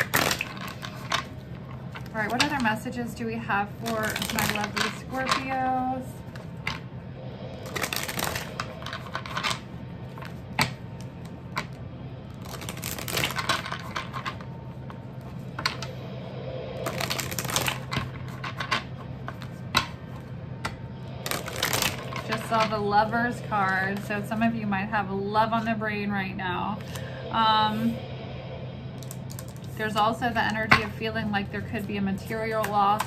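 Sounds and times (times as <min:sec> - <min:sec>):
cards being shuffled: 0:00.0 - 0:01.3, 0:03.8 - 0:05.4, 0:07.6 - 0:09.6, 0:12.3 - 0:14.5, 0:16.8 - 0:22.7
steady low hum: 0:00.0 - 0:33.0.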